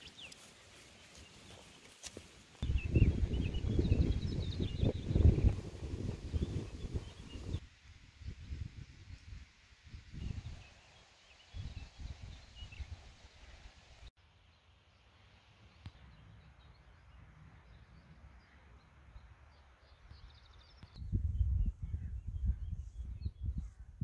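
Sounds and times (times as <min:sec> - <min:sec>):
small birds chirping: 0:00.0 - 0:07.6
wind gusting on microphone: 0:02.6 - 0:10.8, 0:11.5 - 0:13.2, 0:21.0 - 0:24.0.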